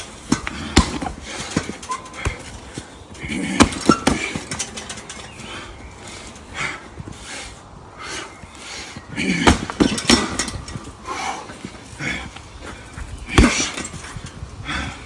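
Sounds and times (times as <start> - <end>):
punches thudding on heavy bag: 0.2 - 2.6, 3.3 - 4.6, 9.3 - 10.6, 13.3 - 14.0.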